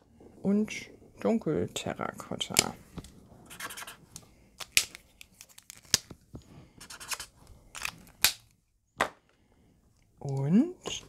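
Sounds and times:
marker tip scratching cardstock: 3.5 - 4.0, 6.8 - 7.3.

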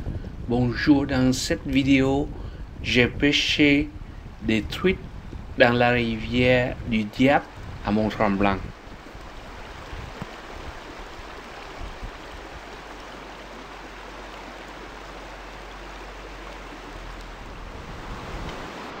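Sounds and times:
river rushing over rocks: 7.5 - 19.0.

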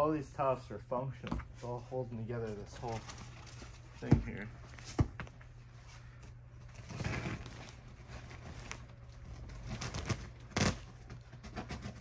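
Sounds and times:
fabric rustling and tearing: 6.7 - 12.0.

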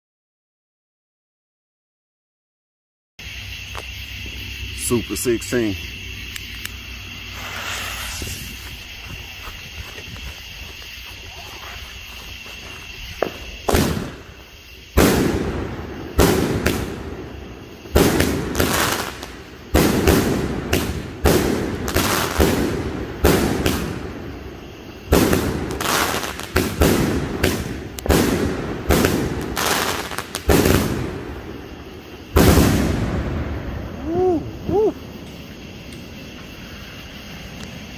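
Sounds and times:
firework cake bangs: 13.2 - 14.2, 15.0 - 17.1, 32.3 - 33.5.

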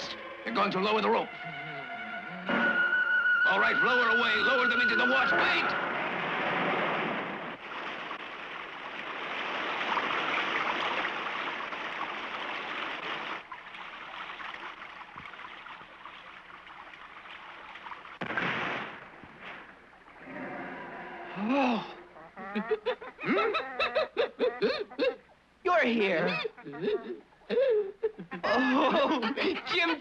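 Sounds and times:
swirling whirlpool water: 2.6 - 23.3
waterfall pouring: 3.5 - 20.4.

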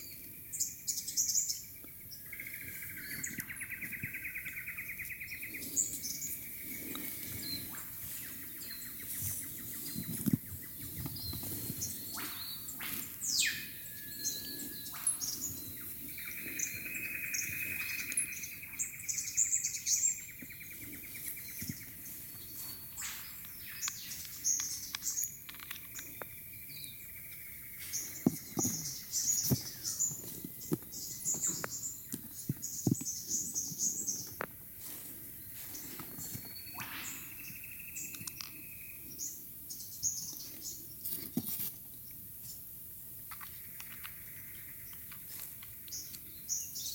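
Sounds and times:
birds chirping: 0.0 - 46.9
small plastic and metal parts clicking: 23.4 - 26.3, 38.1 - 38.6.

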